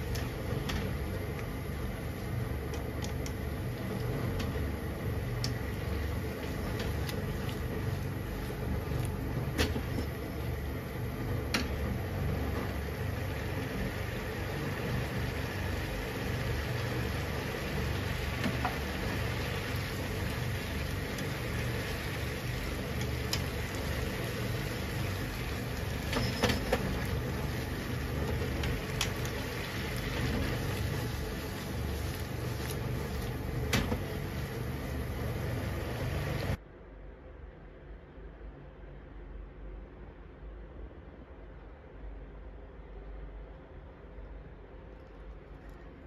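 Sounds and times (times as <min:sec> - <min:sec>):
spaghetti cooking in frying pan: 0:00.0 - 0:36.6
steady low hum: 0:00.0 - 0:46.0.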